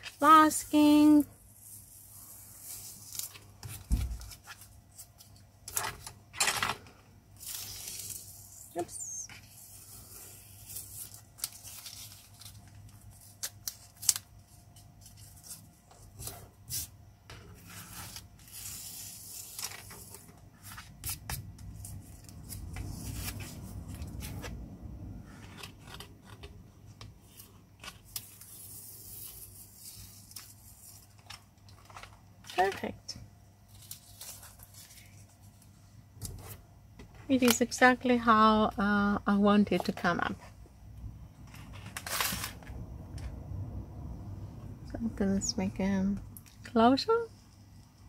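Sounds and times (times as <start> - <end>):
tape peeling off paper: 7.4 - 16.9, 17.7 - 24.4.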